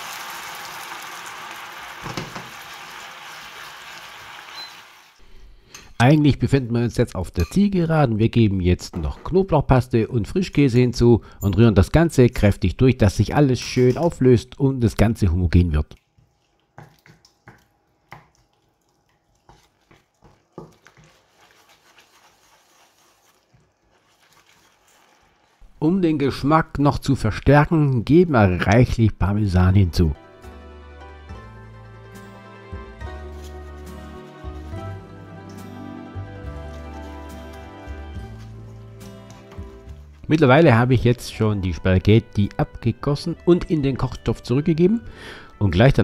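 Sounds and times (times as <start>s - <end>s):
onions sizzling in frying pan: 0.0s - 5.2s
sauce crackling: 0.0s - 5.2s, 15.6s - 25.8s
knock: 2.0s - 2.5s
utensil scraping a frying pan: 19.5s - 25.6s, 31.8s - 40.2s.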